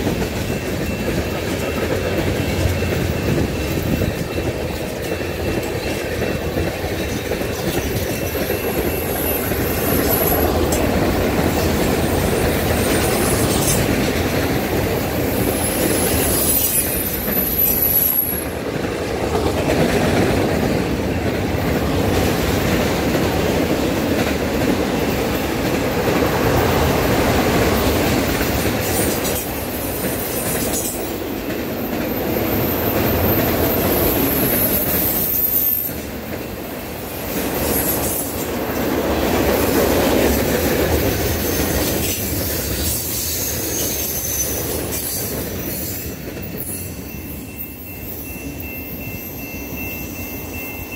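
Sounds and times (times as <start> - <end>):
freight train wheels rumbling: 0.0 - 50.9
high wheel squeal: 15.2 - 18.6, 31.9 - 36.1, 41.4 - 50.9.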